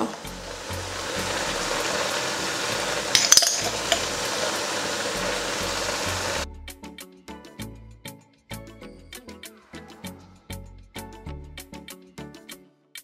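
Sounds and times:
vegetables sizzling in a pan: 0.0 - 6.4
background music: 0.0 - 13.0
clinks: 3.1 - 4.1.

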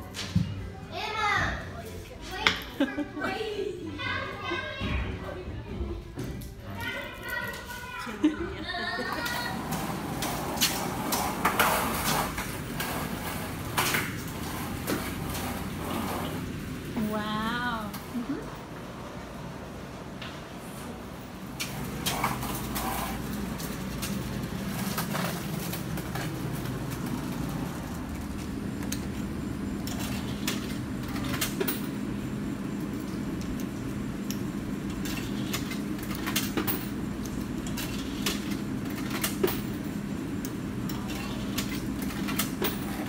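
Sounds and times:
low machine hum: 7.8 - 43.0.

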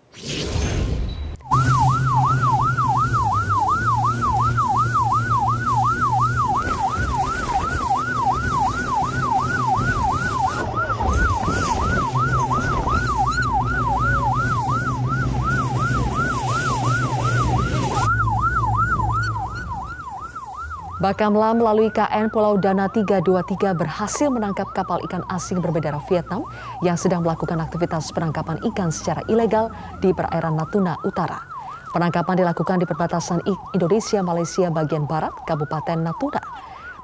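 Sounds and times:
boat engine drone: 1.4 - 37.0
electronic siren yelping: 1.4 - 37.0
rush of wind and water: 1.5 - 21.0.

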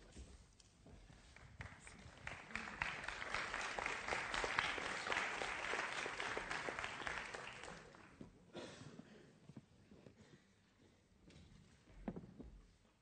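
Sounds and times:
audience applauding: 1.3 - 8.2.

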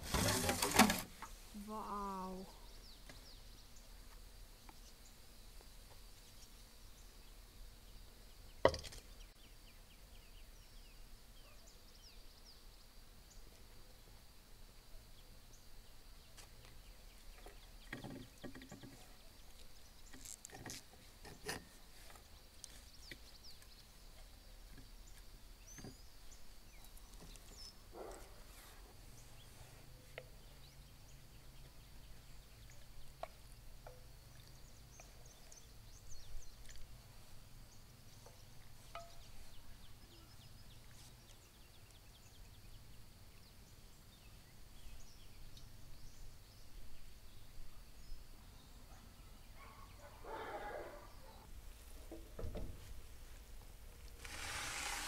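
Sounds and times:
faint outdoor ambience: 0.0 - 55.0.

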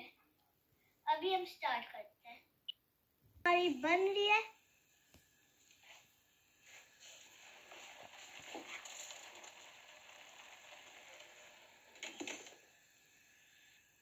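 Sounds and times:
water bubbling at a rolling boil: 6.8 - 14.0.

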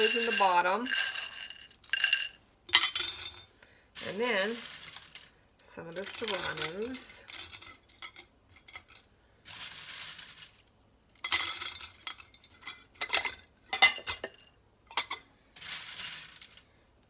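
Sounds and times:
dried peppers rustling and crackling: 0.0 - 2.0, 4.0 - 8.0, 8.8 - 12.6, 15.6 - 16.8
clinks against metal and glass: 0.0 - 3.5, 6.0 - 9.0, 11.2 - 15.2.

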